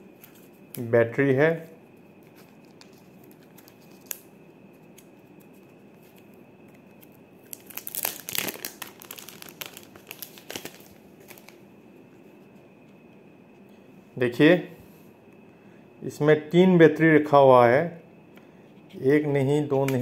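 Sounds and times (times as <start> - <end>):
faint steady high whine: 0.0 - 20.0
plastic packaging crinkling: 2.2 - 11.6.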